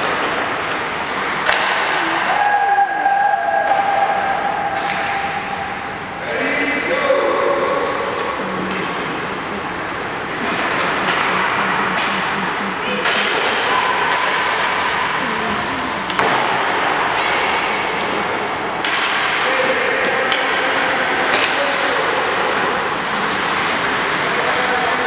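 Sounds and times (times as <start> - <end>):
sticks hitting pucks: 0.0 - 6.0, 10.3 - 25.0
indistinct echoing voices: 0.0 - 25.0.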